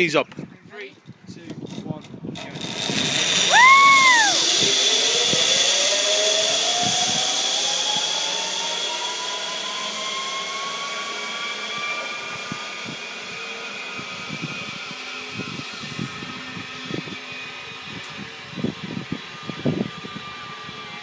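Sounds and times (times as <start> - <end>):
zip-wire trolley whirring whine: 1.6 - 21.0
high rise-and-fall tone: 2.7 - 15.4.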